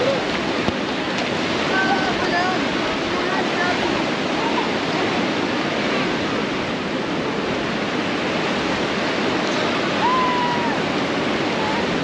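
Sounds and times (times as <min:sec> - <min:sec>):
ocean surf washing in: 0:00.0 - 0:12.0.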